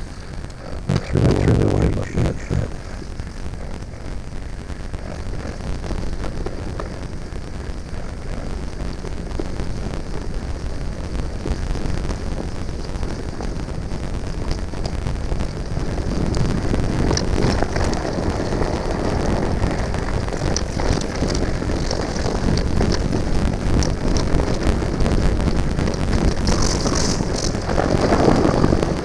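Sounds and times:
trail rumble: 0.0 - 29.0
wind buffeting microphone: 2.6 - 29.0
bike rattling clicks: 26.2 - 28.8.

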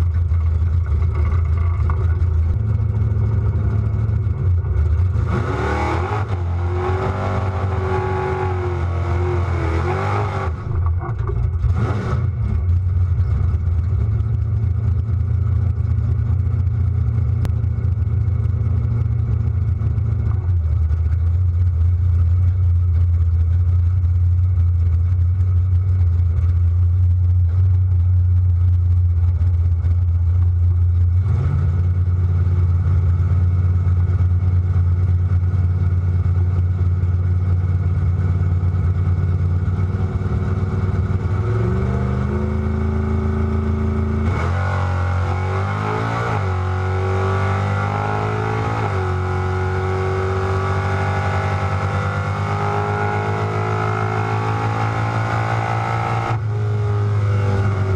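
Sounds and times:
car engine revving and shifting: 0.2 - 14.1, 31.0 - 33.6, 38.0 - 57.9.

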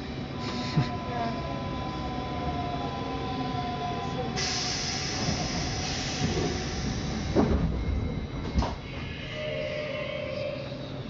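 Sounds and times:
train running with whine: 0.0 - 11.0
loud hiss of air: 4.4 - 7.4.

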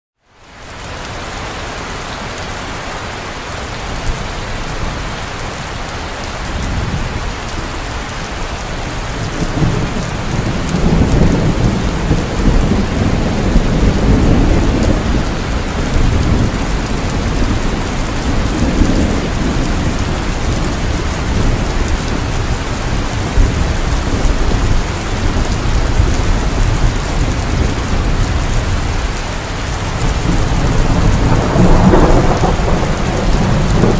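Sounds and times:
heavy rain: 0.2 - 33.9
low rolling thunder: 8.6 - 33.9.

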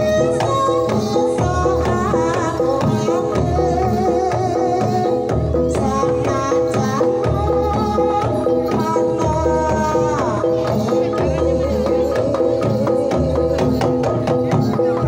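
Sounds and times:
hand drum beating: 0.0 - 15.0.

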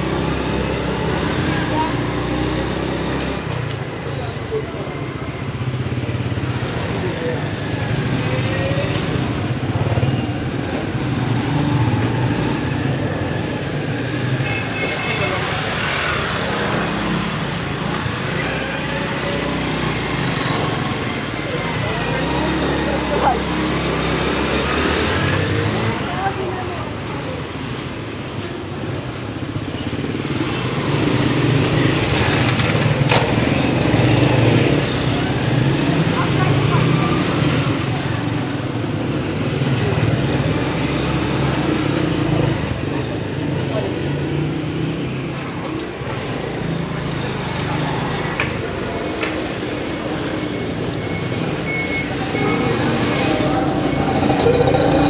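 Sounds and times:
motorbikes and traffic: 0.0 - 55.0
small motorcycle engines running: 29.5 - 55.0
motorcycle passing: 39.4 - 55.0.

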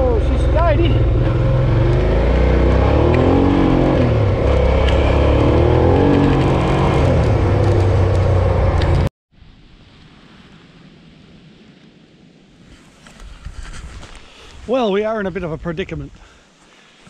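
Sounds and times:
motorcycle engine running: 0.0 - 9.1.

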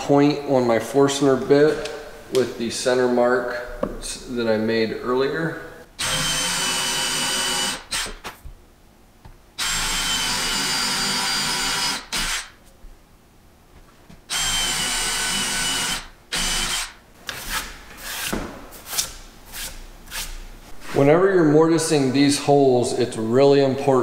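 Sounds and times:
drill boring into wood: 6.0 - 8.2, 9.6 - 12.5, 14.3 - 17.0.

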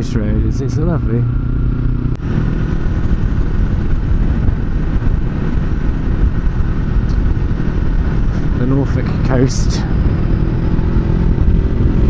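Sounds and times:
motorcycle engine running: 0.0 - 12.0
wind rumble on microphone: 0.0 - 12.0.

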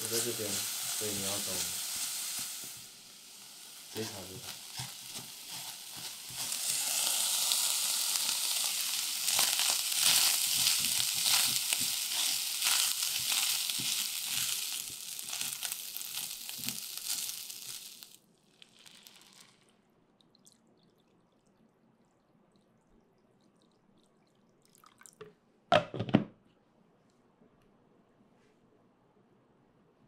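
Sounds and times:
food sizzling in a pot: 0.0 - 19.7
wooden spatula stirring and scraping: 3.5 - 17.3.

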